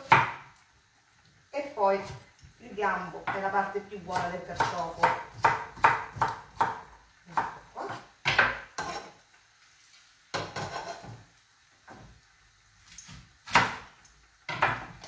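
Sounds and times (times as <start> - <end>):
knife chopping on wooden board: 0.0 - 0.5, 4.1 - 9.1, 13.4 - 13.9, 14.5 - 15.0.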